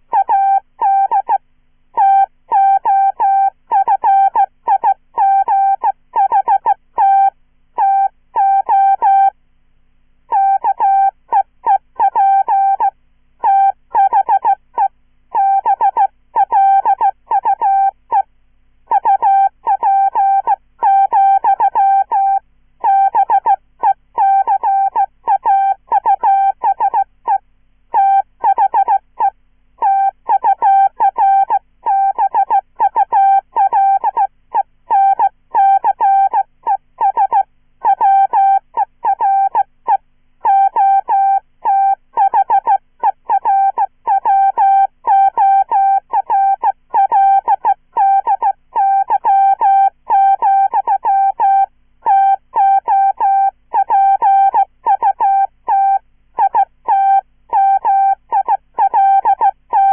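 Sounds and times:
morse code tone: 10.3s - 14.6s, 18.9s - 27.1s, 27.9s - 29.0s, 29.8s - 34.3s, 34.9s - 39.7s, 40.4s - 59.9s.

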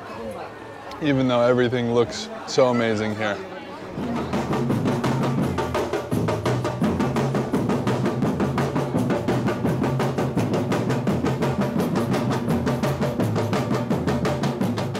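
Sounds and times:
bass drums and snares playing: 3.9s - 14.9s.

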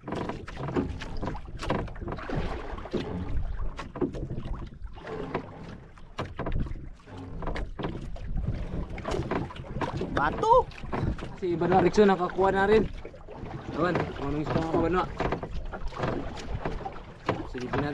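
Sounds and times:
irregular knocks and taps: 0.0s - 2.3s, 3.7s - 12.1s, 12.8s - 17.9s
water washing against boat hull: 0.0s - 17.9s
wind buffeting microphone: 6.3s - 17.9s.

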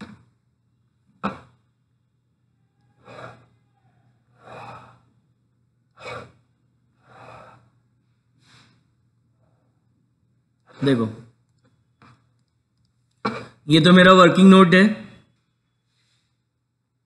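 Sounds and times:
faint low hum: 0.0s - 13.2s
person breathing softly: 4.3s - 5.2s, 7.0s - 9.8s, 15.8s - 16.5s.

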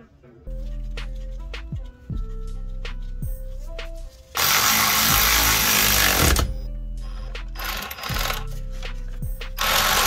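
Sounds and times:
cordless power tool running: 4.4s - 6.5s, 9.6s - 10.0s.

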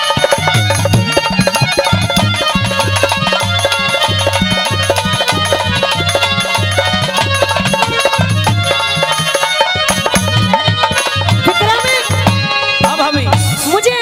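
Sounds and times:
hand drum beating: 0.0s - 14.0s
sustained melody instrument: 0.0s - 14.0s.

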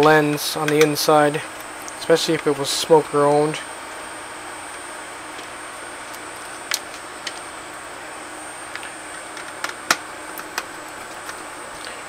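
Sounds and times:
thin high whine: 0.0s - 9.4s.

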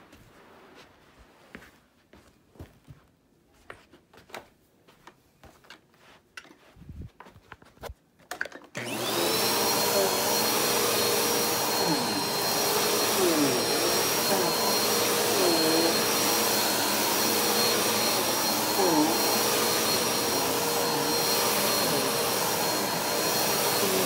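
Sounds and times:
vacuum cleaner motor whining: 8.8s - 24.0s.

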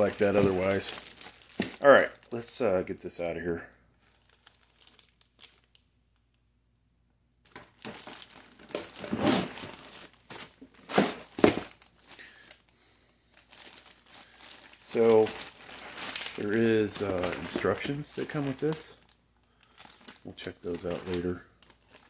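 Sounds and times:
plastic bag crinkling: 0.0s - 2.7s, 4.0s - 5.9s, 7.4s - 22.0s
cardboard box scraping: 8.7s - 9.9s.

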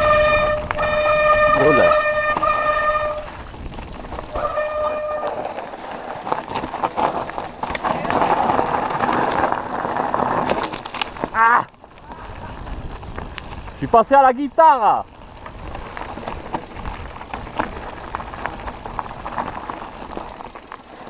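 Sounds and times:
high-pitched bike squeal: 0.0s - 3.4s, 4.2s - 5.7s
bike rattling over stones: 0.0s - 21.0s
tyres crunching on stones: 0.2s - 21.0s.

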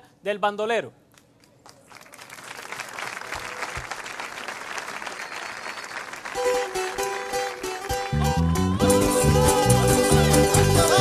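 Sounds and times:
audience applauding: 1.6s - 8.4s
plucked strings and guitars: 6.4s - 11.0s.

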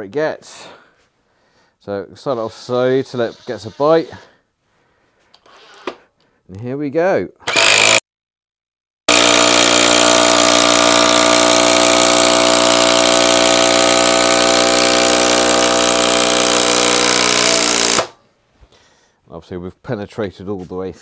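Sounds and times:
impact driver hammering: 9.1s - 18.2s.

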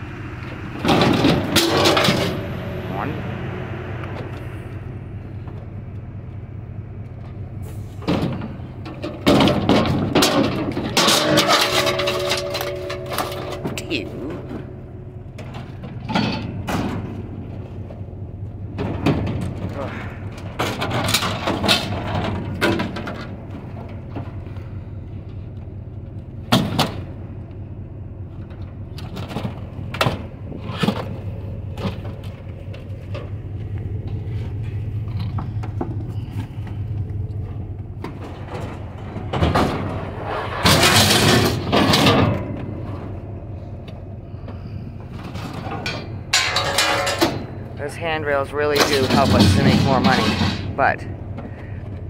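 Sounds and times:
low hum: 0.0s - 52.0s
metal knocks and clanks: 0.4s - 3.2s, 7.1s - 27.5s, 28.3s - 52.0s
metal scraping across metal: 9.4s - 14.8s, 34.0s - 43.7s, 48.6s - 51.1s.

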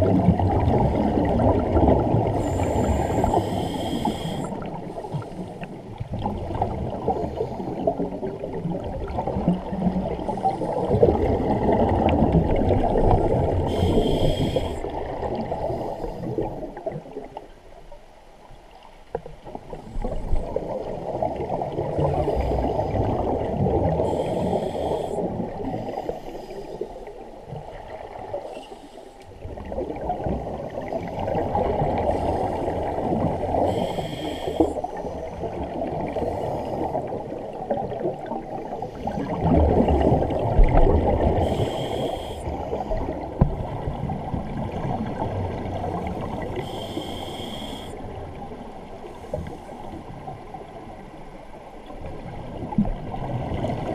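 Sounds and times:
regulator hissing inhalations: 2.4s - 5.3s, 13.6s - 14.8s, 24.1s - 25.3s, 33.6s - 34.8s, 41.4s - 42.6s, 46.6s - 48.0s.

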